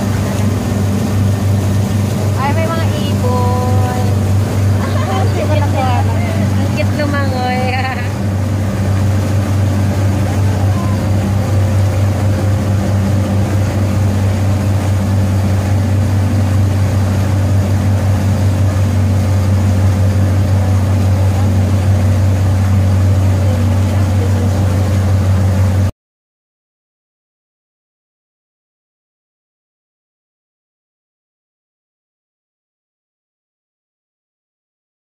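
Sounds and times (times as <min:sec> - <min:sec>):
boat engine droning: 0:00.0 - 0:25.9
water rushing: 0:00.0 - 0:25.9.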